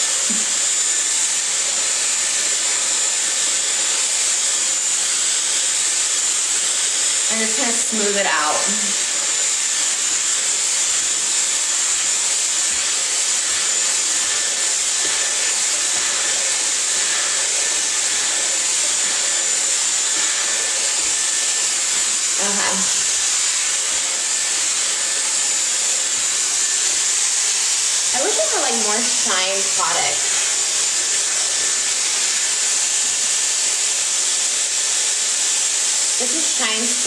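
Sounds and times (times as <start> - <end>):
hot-air brush rushing air: 0.0 - 37.0
high motor whine: 7.2 - 33.5.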